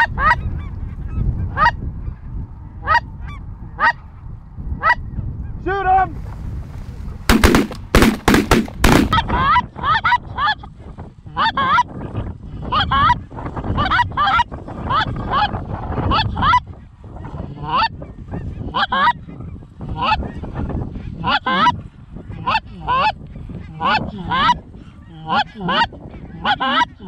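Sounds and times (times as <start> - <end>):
shotgun shots: 7.3 - 9.2.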